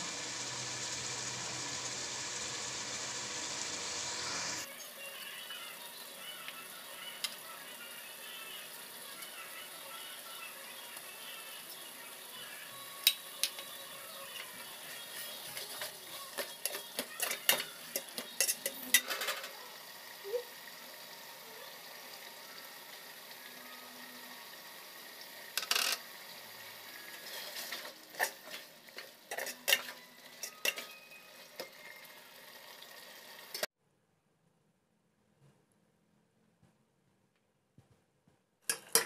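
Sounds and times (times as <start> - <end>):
food sizzling in a pot: 0.0 - 33.7
metal spoon scraping metal pot: 16.6 - 19.3, 29.3 - 30.9.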